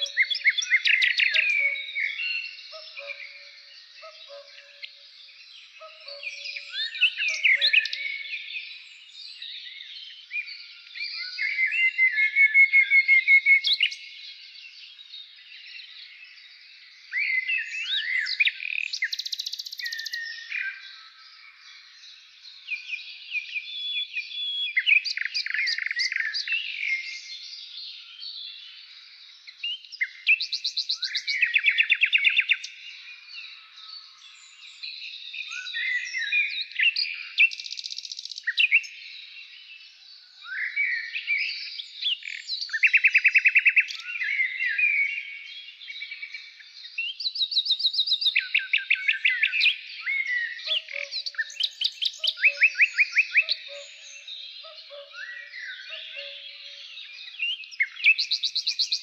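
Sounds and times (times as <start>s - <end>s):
lower bird call: 0.0s - 5.1s, 5.7s - 8.4s
songbirds chirping and trilling: 0.0s - 59.0s.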